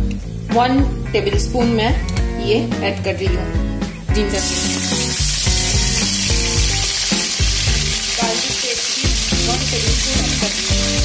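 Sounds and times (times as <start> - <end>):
background music: 0.0 - 11.0
paste sizzling in hot oil: 4.1 - 11.0.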